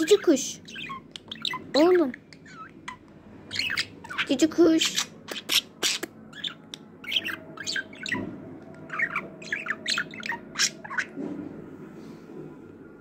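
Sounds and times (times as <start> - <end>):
budgerigar chattering: 0.0 - 8.2.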